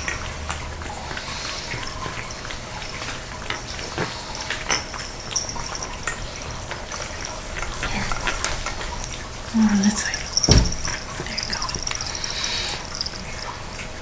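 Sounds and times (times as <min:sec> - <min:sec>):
cats chewing food: 0:00.0 - 0:14.0.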